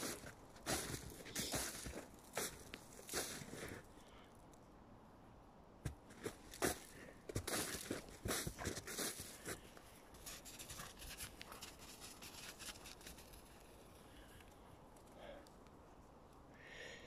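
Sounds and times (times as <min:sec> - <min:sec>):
footsteps crunching in snow: 0:00.0 - 0:03.9, 0:05.8 - 0:14.0.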